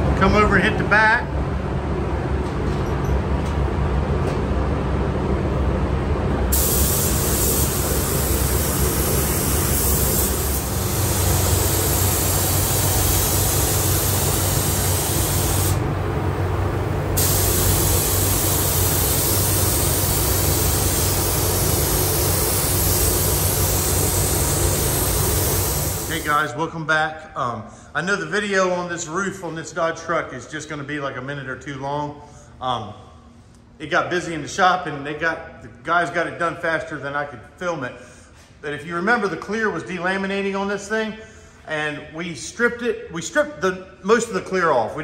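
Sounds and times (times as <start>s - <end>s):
low mechanical hum: 0.0s - 45.0s
spray gun hissing: 6.5s - 15.8s, 17.2s - 26.4s.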